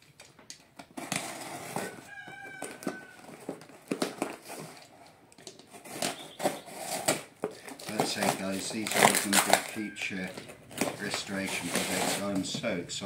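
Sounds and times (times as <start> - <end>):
knife slicing packing tape: 5.9 - 9.8, 11.0 - 12.4.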